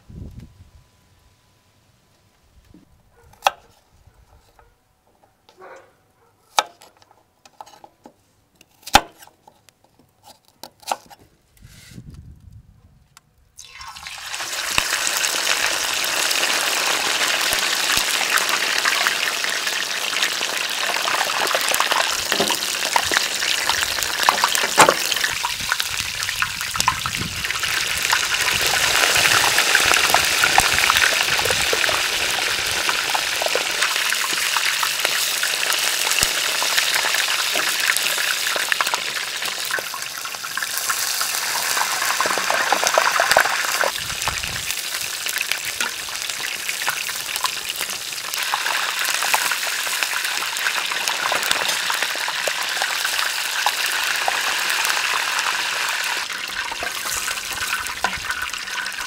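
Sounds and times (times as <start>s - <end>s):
meat sizzling in hot oil: 13.6s - 59.0s.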